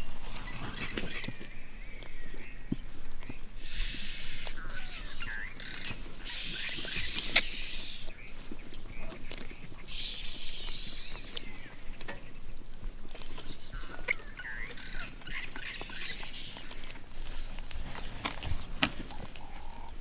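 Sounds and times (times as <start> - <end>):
vultures hissing squeals: 0.0 - 2.3, 3.6 - 8.1, 9.8 - 11.6, 13.4 - 17.6.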